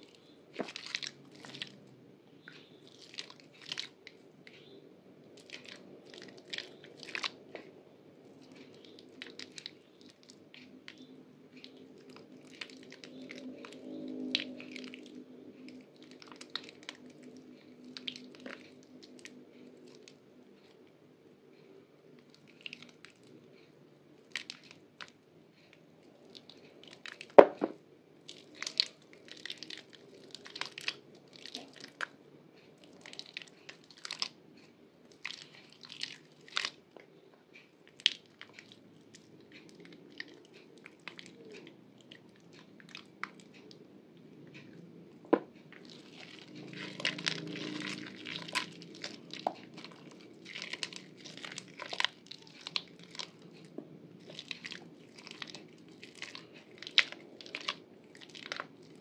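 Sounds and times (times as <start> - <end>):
wet soap crunching: 0.2 - 1.8, 2.4 - 4.0, 5.4 - 7.7, 8.3 - 20.2, 26.3 - 32.2, 32.8 - 34.4, 35.1 - 36.8, 37.9 - 43.8, 45.4 - 59.0.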